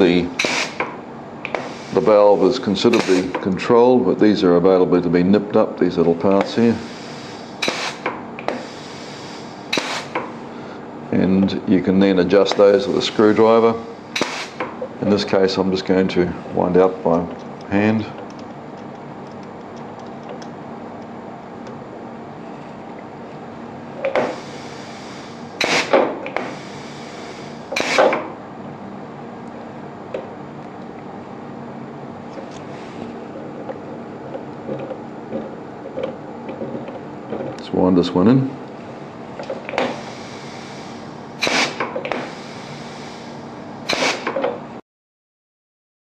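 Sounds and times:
hissing exhaust air: 0.0 - 4.5, 6.2 - 17.0, 24.0 - 28.4, 32.3 - 33.6, 38.2 - 44.5.

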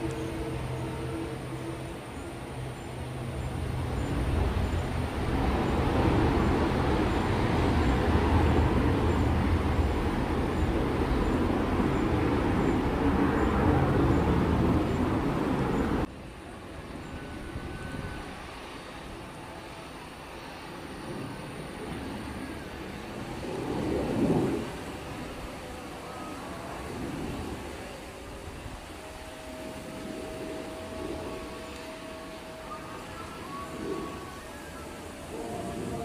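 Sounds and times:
distant jet: 0.0 - 36.0
fighter jet passing: 17.2 - 36.0.

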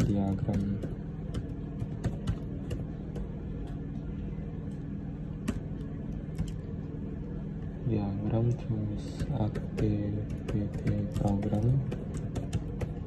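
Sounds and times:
steady low hum: 0.0 - 13.0
keyboard keys clicking: 6.3 - 6.6, 9.2 - 13.0.

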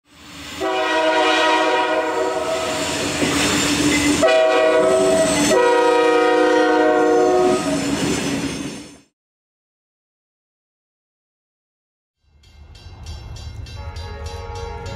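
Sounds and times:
locomotive air horn blasts: 0.6 - 2.9, 4.2 - 7.8, 13.8 - 14.9.

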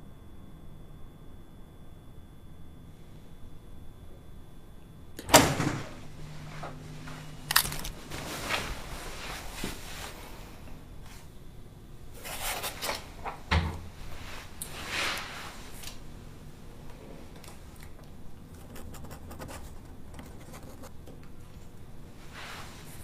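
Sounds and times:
paper rustling on clipboard: 6.5 - 10.2.

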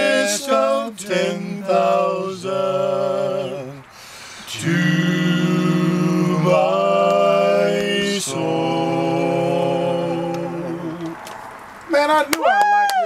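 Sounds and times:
two men singing a cappella: 0.0 - 11.2.

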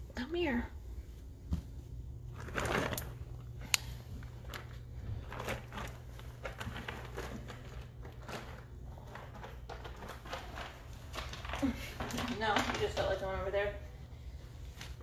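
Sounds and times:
steady low hum: 0.0 - 12.1
pellet litter crunching under paws: 1.8 - 13.8.

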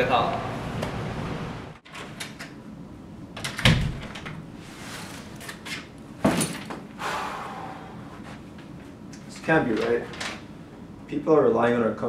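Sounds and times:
door knocks opening and shutting: 3.4 - 4.4.

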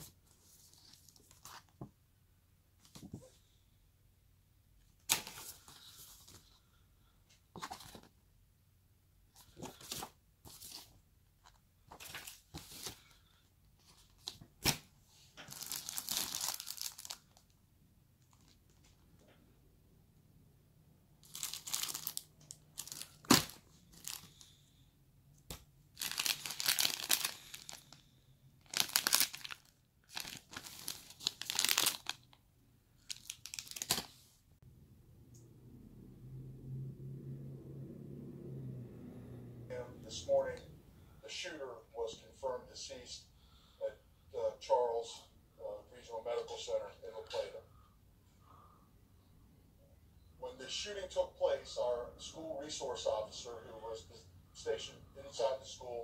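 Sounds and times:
plastic bags rustling: 15.4 - 17.4, 21.2 - 24.5, 25.9 - 28.0, 28.6 - 32.3, 33.0 - 34.2.

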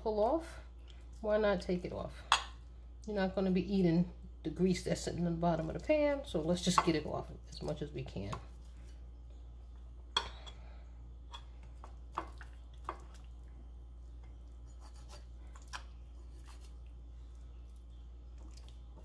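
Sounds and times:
low steady hum: 0.0 - 19.0
knife cutting and scraping meat: 14.6 - 16.9.

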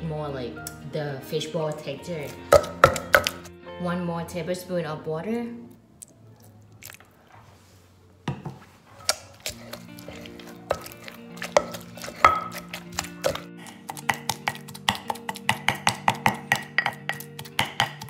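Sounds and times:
background music: 0.0 - 7.0, 9.1 - 18.0
wooden pestle pounding in mortar: 2.5 - 3.4, 9.4 - 18.0.

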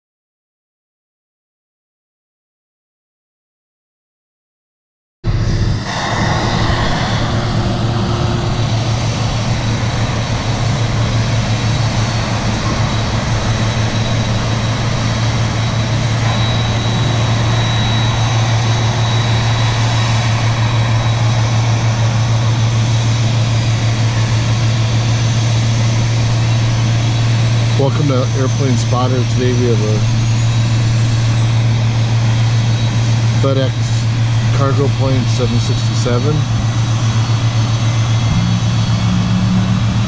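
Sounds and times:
jet engines rumbling: 5.2 - 40.0
faint high whine: 5.3 - 40.0.

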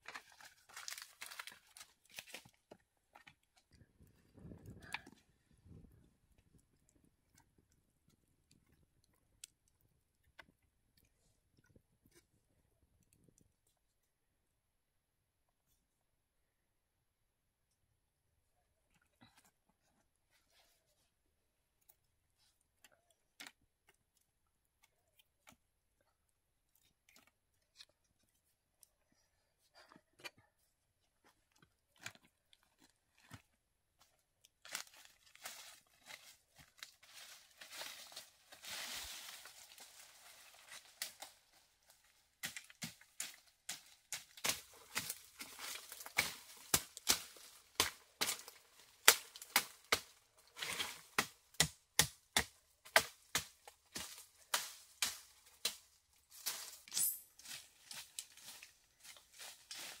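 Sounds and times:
dry leaves and twigs rustling: 0.0 - 6.5, 31.2 - 60.0
machete hacking undergrowth: 42.4 - 55.8.

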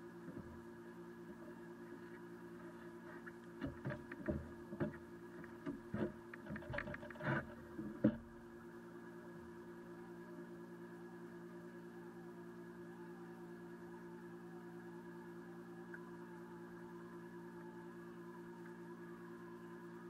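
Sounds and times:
boat motor humming: 0.0 - 20.0
knocks and rattles on deck: 3.6 - 5.0.

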